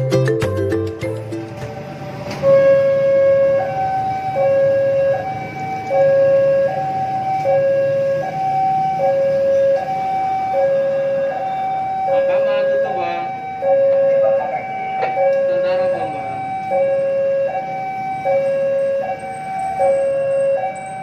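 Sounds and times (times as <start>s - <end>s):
level crossing two-tone alarm: 1.0s - 21.0s.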